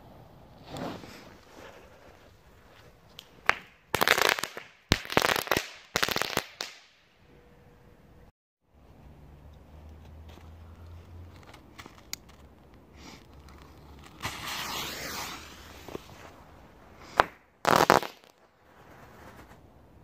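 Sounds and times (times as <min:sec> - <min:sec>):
firework crack: 0:00.6 - 0:07.0, 0:12.8 - 0:19.6
firework bangs with crackling: 0:03.4 - 0:06.9, 0:14.2 - 0:16.2, 0:17.1 - 0:19.6
firework hissing: 0:12.9 - 0:18.3.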